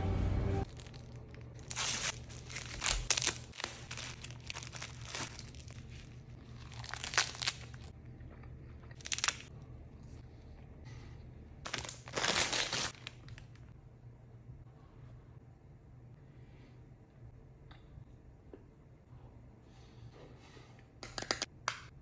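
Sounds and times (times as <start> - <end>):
plastic wrapper tearing and crinkling: 0.6 - 7.9, 9.0 - 9.5, 11.7 - 13.6.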